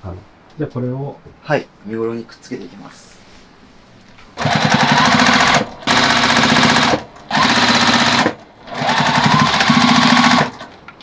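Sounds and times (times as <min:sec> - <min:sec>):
electric sewing machine stitching: 0:04.4 - 0:10.7.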